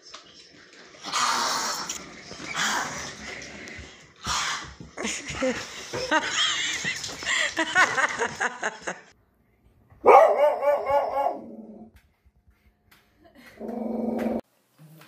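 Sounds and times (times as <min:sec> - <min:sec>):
dog barking: 0:10.0 - 0:11.5.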